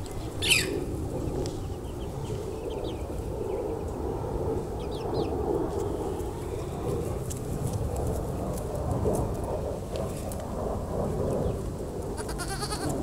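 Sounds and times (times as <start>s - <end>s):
small birds chirping: 0.0s - 4.1s, 4.8s - 6.7s.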